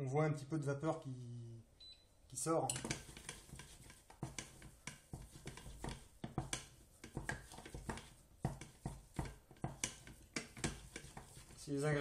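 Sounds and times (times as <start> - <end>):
wooden spoon scraping saucepan: 2.7 - 12.0.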